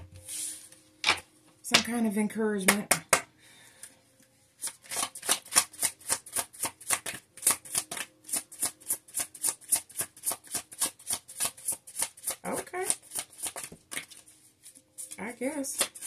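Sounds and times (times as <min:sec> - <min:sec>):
cards being shuffled: 0:04.6 - 0:14.4, 0:15.0 - 0:16.0.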